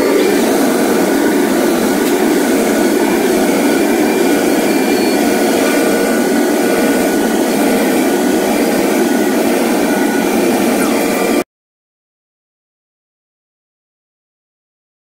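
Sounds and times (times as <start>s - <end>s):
cnc machine running: 0.0s - 11.4s.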